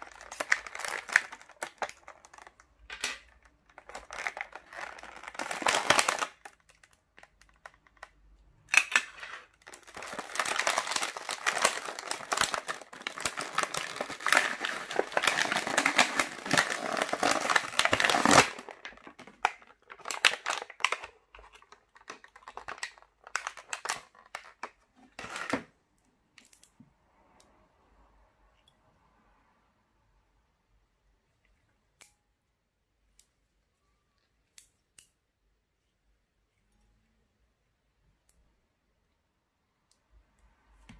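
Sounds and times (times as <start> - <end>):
plastic packaging crinkling: 0.0 - 25.7.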